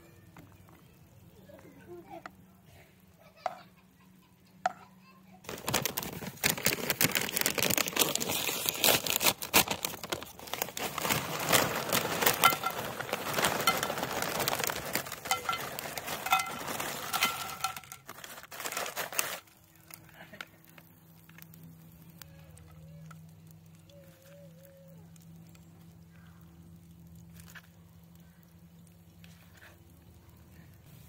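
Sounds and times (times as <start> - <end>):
plastic chip bag crinkling: 5.4 - 24.3, 26.6 - 30.7
faint low hum: 19.5 - 31.0.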